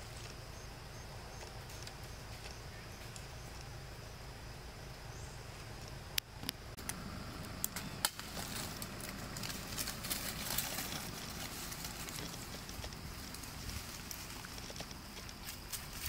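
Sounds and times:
sharp snaps: 0:05.8 - 0:09.6
dry leaves crackling and rustling: 0:07.5 - 0:16.0.

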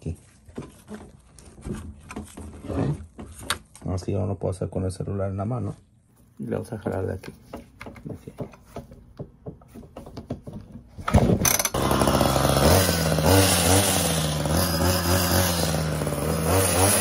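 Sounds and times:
recoil cord pull: 0:11.1 - 0:11.8
hedge trimmer engine running: 0:11.1 - 0:17.0.

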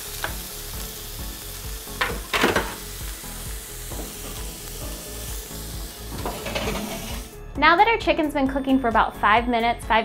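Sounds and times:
chicken sizzling in a pan: 0:00.0 - 0:07.3
spatula scraping a pan: 0:06.1 - 0:07.3.

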